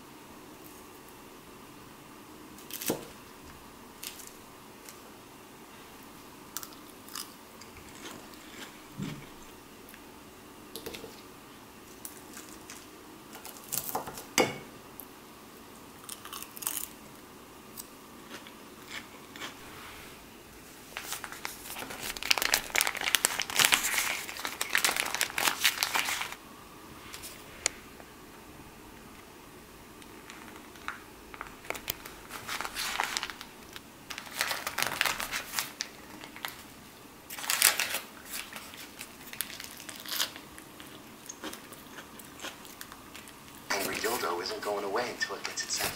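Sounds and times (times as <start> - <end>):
crunching lettuce bites: 6.5 - 9.3, 16.0 - 17.1, 37.3 - 43.6.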